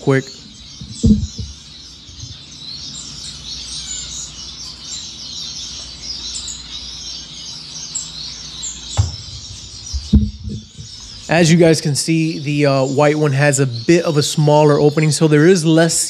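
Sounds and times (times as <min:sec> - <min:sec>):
finches chirping: 0:00.0 - 0:16.0
soft knock: 0:00.8 - 0:01.6, 0:09.0 - 0:09.3, 0:09.9 - 0:10.6.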